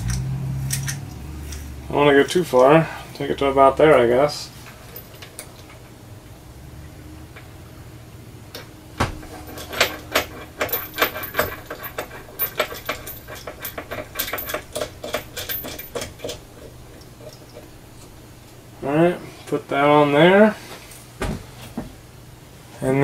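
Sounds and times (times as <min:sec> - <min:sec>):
metallic clicks and clinks: 0:00.0 - 0:01.7, 0:08.5 - 0:18.2
low steady hum: 0:00.0 - 0:23.0.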